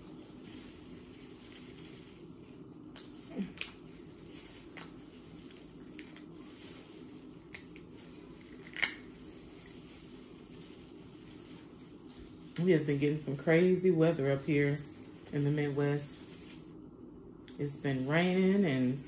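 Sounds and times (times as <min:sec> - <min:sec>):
steady low hum: 0:00.0 - 0:19.0
crab shell cracking: 0:08.5 - 0:09.2.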